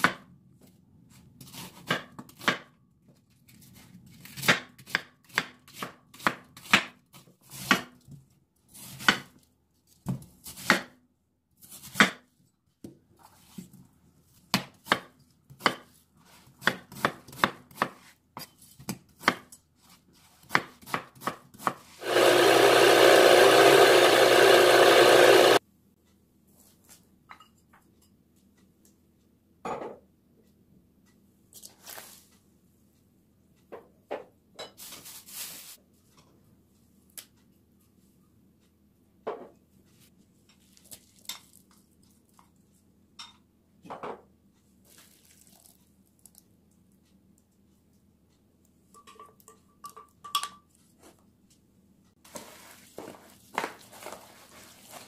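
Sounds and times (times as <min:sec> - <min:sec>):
knife chopping on wooden board: 0:04.2 - 0:08.0, 0:10.0 - 0:11.0, 0:14.5 - 0:18.1, 0:20.4 - 0:21.9
electric blender grinding: 0:22.0 - 0:25.6.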